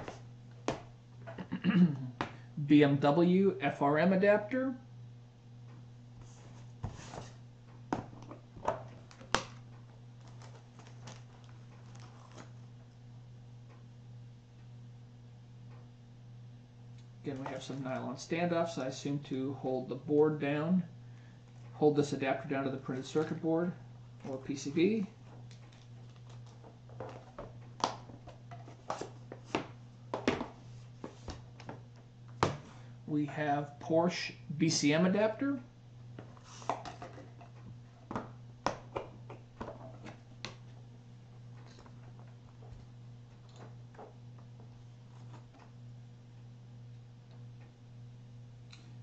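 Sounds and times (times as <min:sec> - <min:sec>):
steady low hum: 0:00.0 - 0:49.0
plastic bag rustling: 0:10.2 - 0:12.7.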